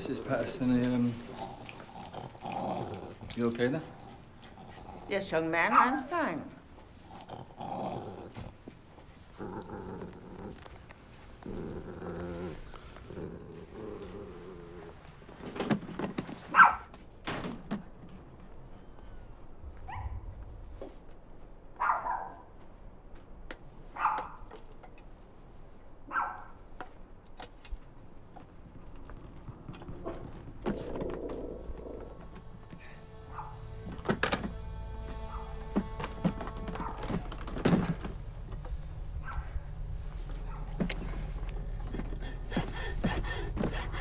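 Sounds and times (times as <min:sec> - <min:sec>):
dog growling: 0:00.0 - 0:05.9, 0:07.0 - 0:15.2
dog barking: 0:16.6 - 0:16.8, 0:21.8 - 0:22.5, 0:24.0 - 0:24.4, 0:26.1 - 0:26.6, 0:33.3 - 0:33.6.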